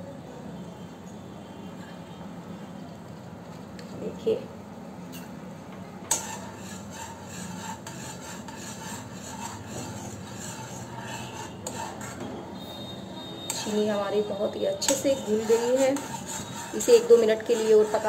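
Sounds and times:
metal spoon scraping metal pan: 0:06.1 - 0:18.0.

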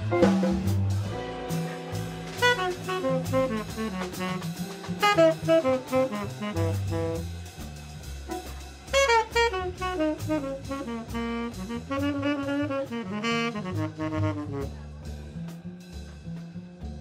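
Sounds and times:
tenor saxophone playing jazz: 0:00.0 - 0:15.2
bass: 0:00.0 - 0:17.0
drum kit: 0:00.0 - 0:17.0.

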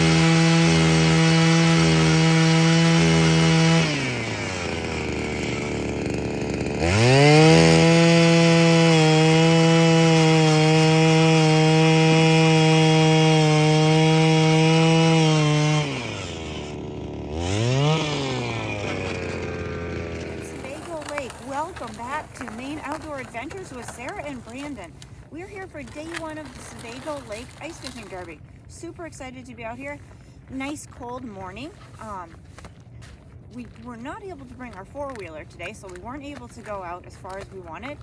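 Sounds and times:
ice auger motor running: 0:00.0 - 0:28.4.

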